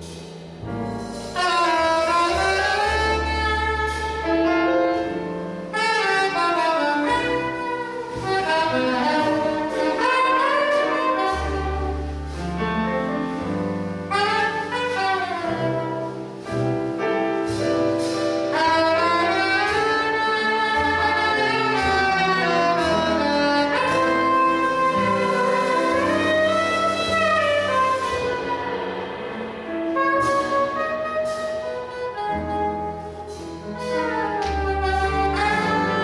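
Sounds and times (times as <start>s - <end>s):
double bass notes: 0.0s - 36.0s
piano accompaniment: 0.0s - 36.0s
saxophone melody: 1.4s - 4.6s, 5.7s - 12.3s, 14.1s - 16.4s, 18.5s - 28.9s, 29.9s - 36.0s.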